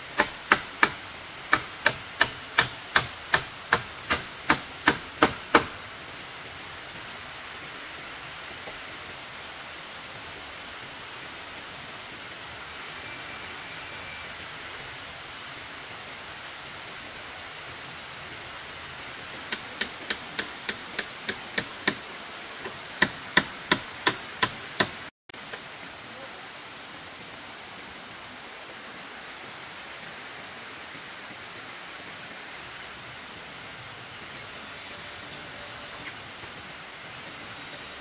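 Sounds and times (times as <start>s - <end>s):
steady hiss: 0.0s - 38.0s
sharp knocks: 0.2s - 5.8s, 22.6s - 25.0s.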